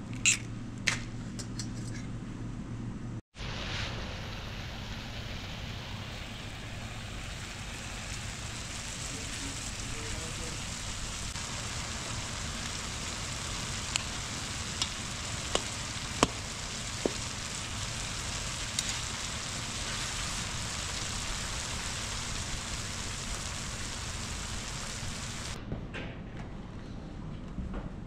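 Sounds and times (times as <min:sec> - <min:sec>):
food sizzling: 0:03.4 - 0:25.6.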